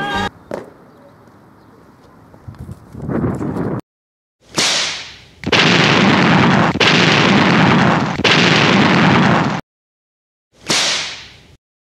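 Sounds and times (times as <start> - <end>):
explosion sound effects: 5.5 - 9.6.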